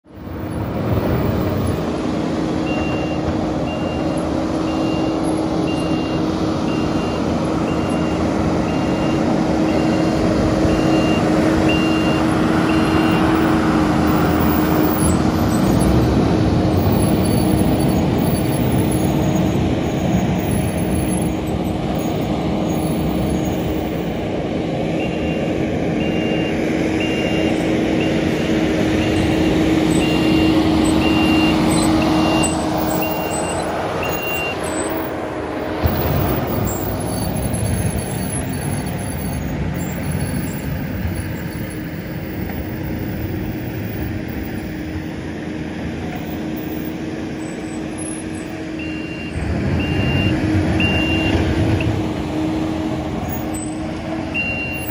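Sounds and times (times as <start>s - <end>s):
heavy machinery engine running: 0.1s - 54.9s
reversing alarm beeping: 2.6s - 16.0s, 25.0s - 35.1s, 48.8s - 52.0s, 53.5s - 54.9s.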